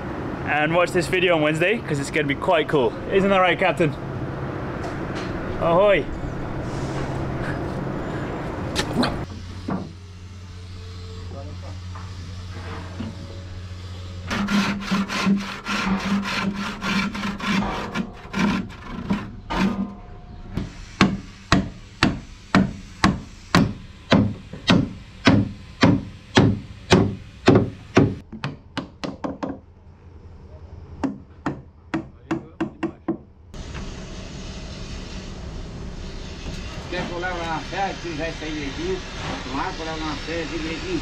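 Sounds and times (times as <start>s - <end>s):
rubbing strokes on wood: 14.3s - 19.7s
claw hammer striking wood: 21.0s - 29.6s, 31.0s - 33.2s.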